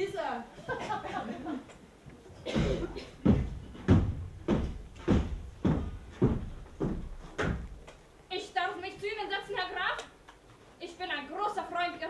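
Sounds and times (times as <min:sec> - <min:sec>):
heavy footsteps on stage floor: 0:02.3 - 0:08.2.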